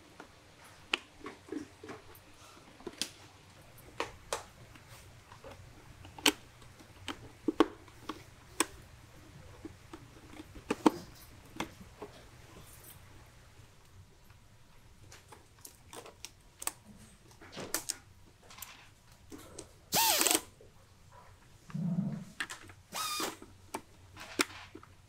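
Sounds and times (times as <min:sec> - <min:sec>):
soft rubbing and handling noise: 0:00.0 - 0:19.9.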